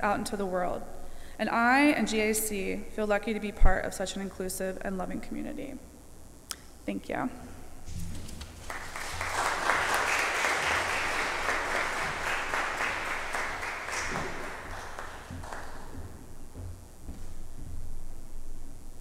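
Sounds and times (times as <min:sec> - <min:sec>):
congregation applauding: 0:08.2 - 0:16.4.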